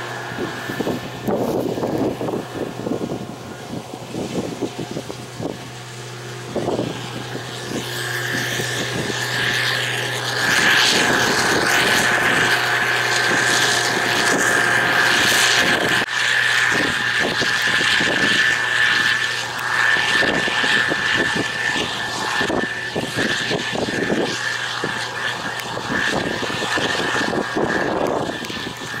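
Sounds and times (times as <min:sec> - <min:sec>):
combine harvester running: 0:00.0 - 0:29.0.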